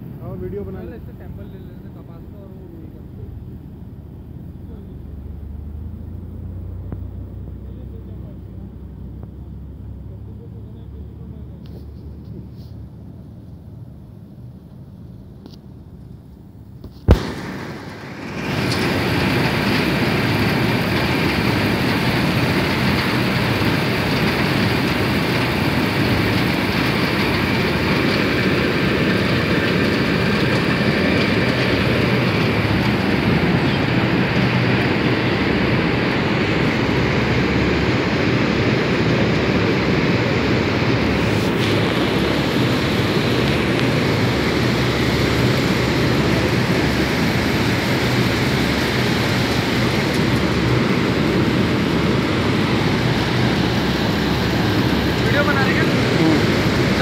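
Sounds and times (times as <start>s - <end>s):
machinery running: 17.1s - 57.0s.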